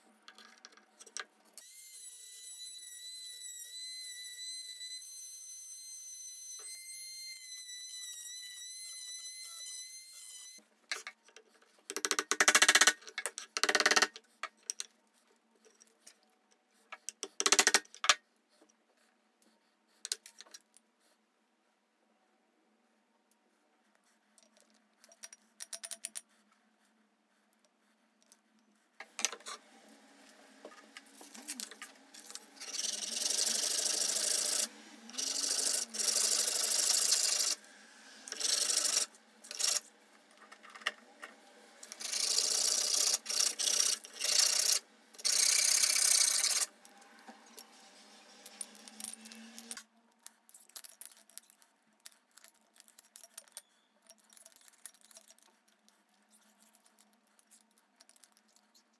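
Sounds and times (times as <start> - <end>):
wooden parts clicking: 10.9 - 14.9, 17.0 - 18.2.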